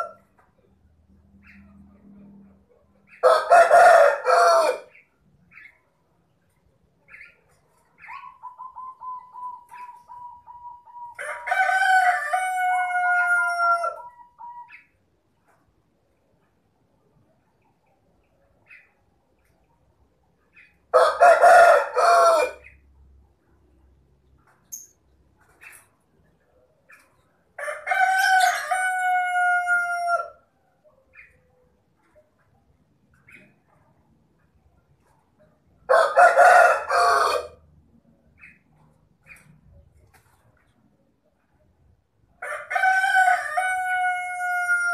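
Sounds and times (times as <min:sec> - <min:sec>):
rooster crowing: 0:03.2 - 0:04.9, 0:11.1 - 0:14.5, 0:20.9 - 0:22.6, 0:27.6 - 0:30.4, 0:35.9 - 0:37.6, 0:42.4 - 0:44.9.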